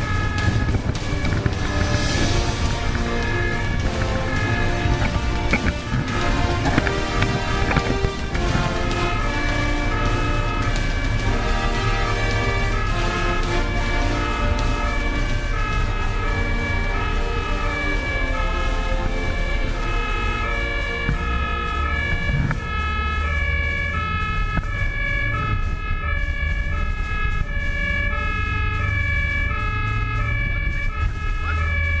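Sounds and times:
two-tone siren: 0.0s - 32.0s
vehicle engine and road noise: 0.0s - 32.0s.

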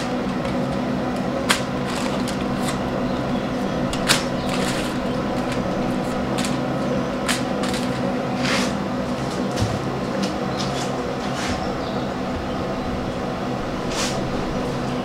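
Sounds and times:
aluminium foil crinkling: 0.0s - 8.2s
steady hum: 0.0s - 15.0s.

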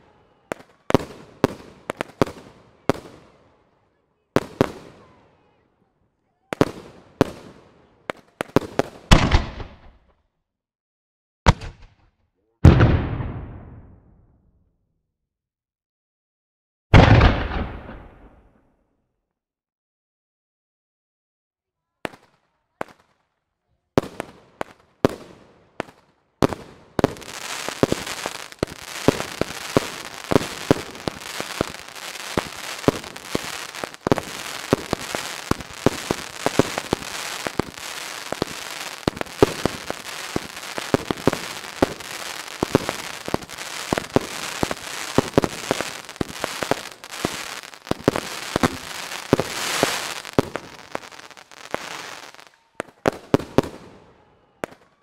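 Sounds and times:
fireworks pops and bangs: 0.0s - 3.3s, 4.4s - 5.2s, 6.4s - 10.2s, 11.5s - 14.0s, 17.0s - 18.6s, 23.9s - 54.0s, 54.6s - 55.0s
fireworks hiss: 27.1s - 52.4s.

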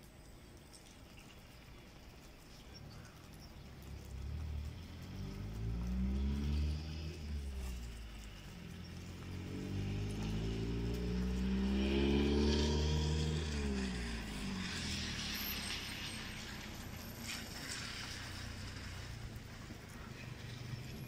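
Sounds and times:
car driving past: 2.9s - 21.0s.

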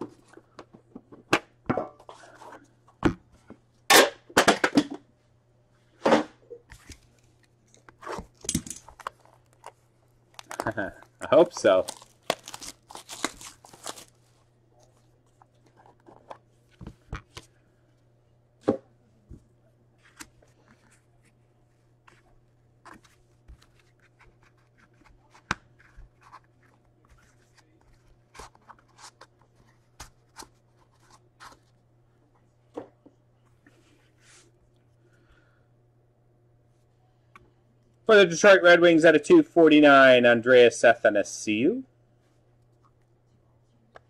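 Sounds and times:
plastic wrap crinkling and tearing: 10.3s - 14.2s.

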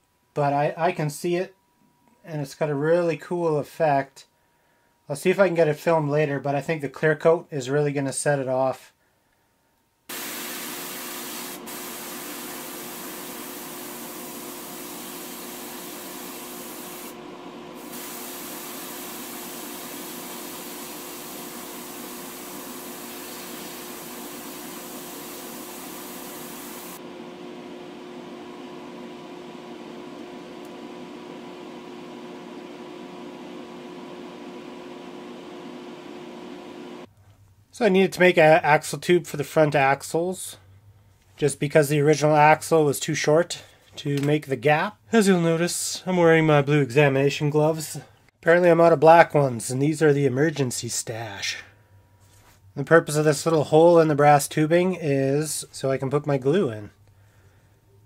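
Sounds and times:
airbrush hissing: 10.1s - 27.0s
steady mechanical hum: 10.1s - 37.4s.

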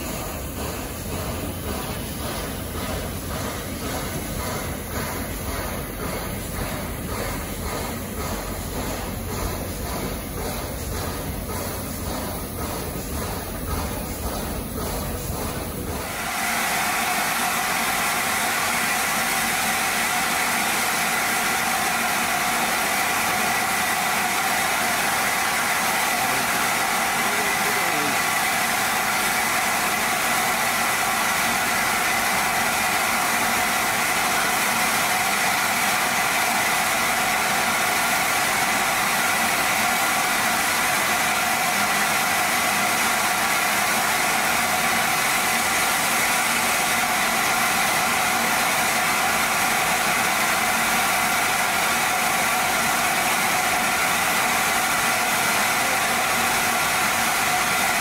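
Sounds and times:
steam hissing from locomotive: 0.0s - 58.0s.

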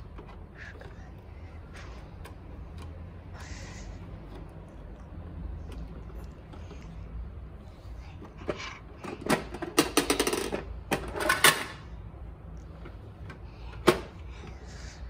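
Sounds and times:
plastic toy truck parts rattling: 8.4s - 11.9s.

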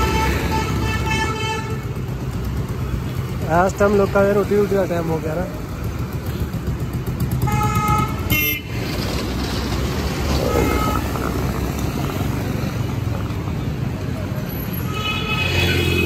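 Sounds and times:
vehicle horns tooting: 0.0s - 2.0s, 7.4s - 8.9s, 10.4s - 11.2s, 14.7s - 16.0s
street traffic: 0.0s - 16.0s.

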